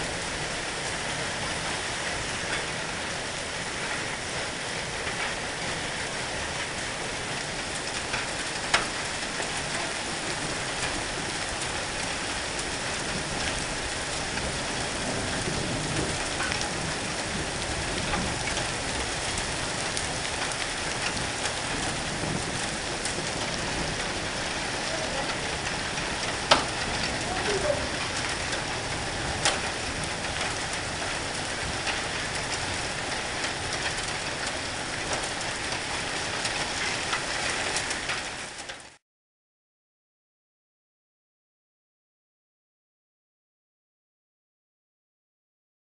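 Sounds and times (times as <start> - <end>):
hail and rain falling: 0.0 - 39.0
sharp hail clicks: 6.5 - 39.0.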